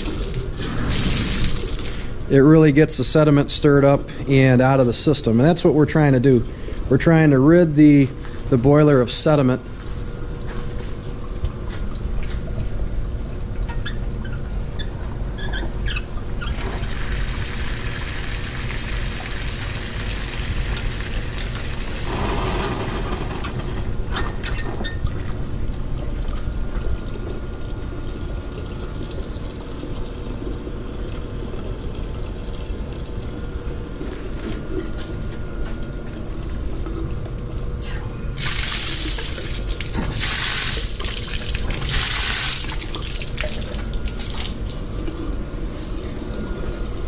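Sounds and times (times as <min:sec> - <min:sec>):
steam and water rushing: 0:22.0 - 0:23.4.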